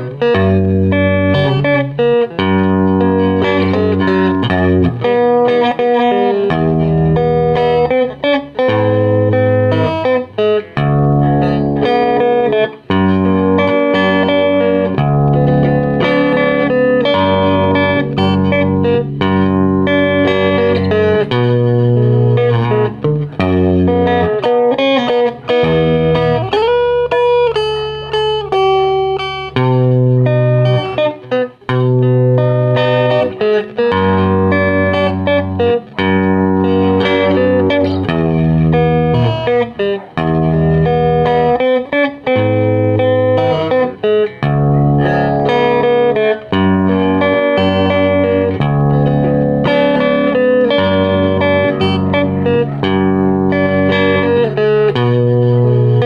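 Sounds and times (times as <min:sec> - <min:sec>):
electric guitar lead line: 0:00.0 - 0:56.0
sustained bass notes: 0:08.7 - 0:24.7, 0:44.4 - 0:56.0.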